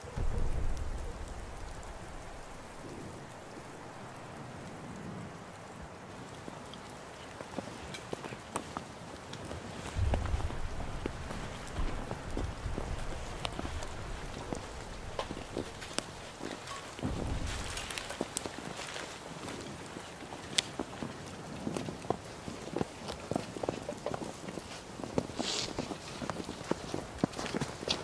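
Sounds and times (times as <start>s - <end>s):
low rumble: 0.0s - 5.0s, 10.0s - 16.4s, 17.0s - 18.4s
twigs crackling: 0.0s - 8.1s, 9.3s - 21.4s
wind-like hiss: 0.0s - 28.0s.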